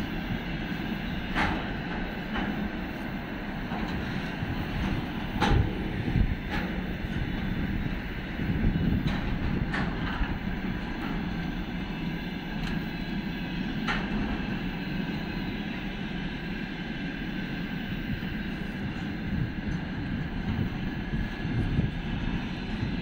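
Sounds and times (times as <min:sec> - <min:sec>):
train wheels rumbling on rails: 0:00.0 - 0:23.0
wheels clicking over rail joints: 0:04.8 - 0:07.6.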